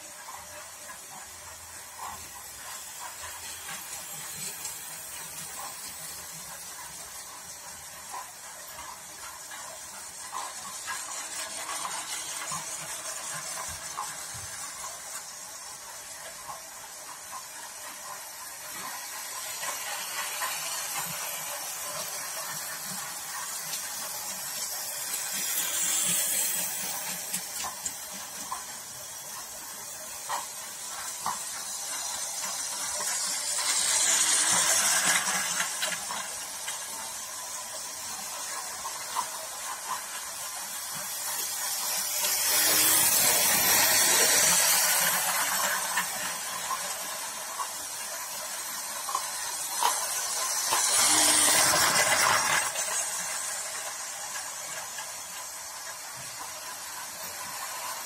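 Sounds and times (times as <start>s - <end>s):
toy train rattling on track: 0.0s - 58.0s.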